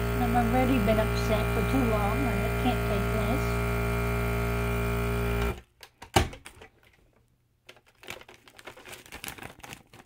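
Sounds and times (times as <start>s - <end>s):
vacuum sealer pump hum: 0.0s - 5.6s
plastic bag crinkling: 6.4s - 10.0s.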